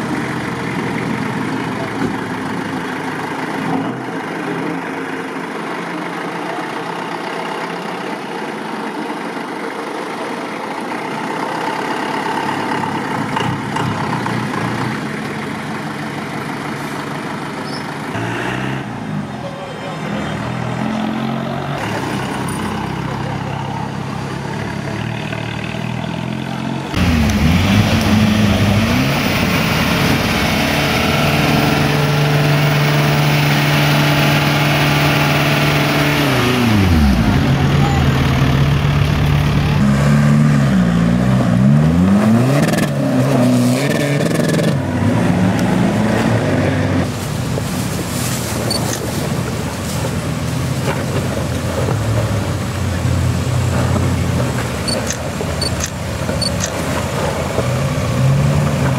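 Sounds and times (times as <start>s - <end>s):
car engine revving: 18.1s - 47.6s.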